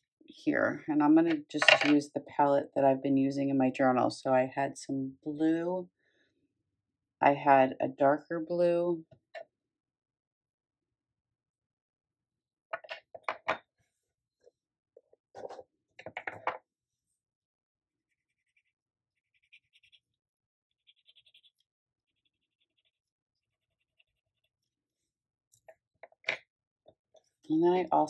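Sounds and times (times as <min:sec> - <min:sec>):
pencil scratching on paper: 0:18.0 - 0:25.2.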